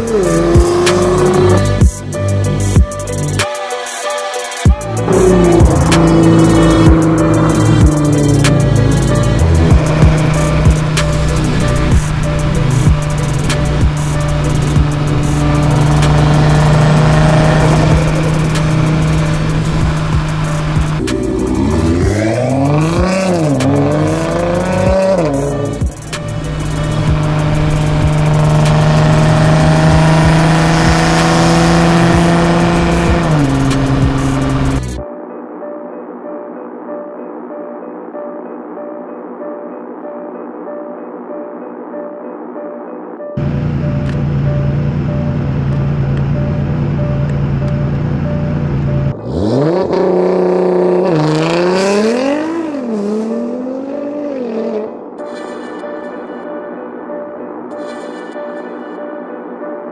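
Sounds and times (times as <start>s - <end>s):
car engine exhaust drone: 5.0s - 35.0s, 43.4s - 53.8s.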